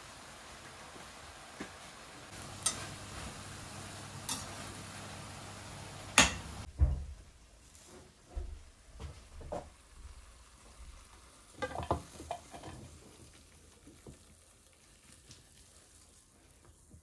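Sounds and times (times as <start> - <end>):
vegetables sizzling in pan: 0.0 - 6.7, 9.3 - 17.0
metal utensil clinking on pan: 2.6 - 3.0, 4.3 - 4.5, 11.6 - 12.8
dull knock: 6.7 - 7.2.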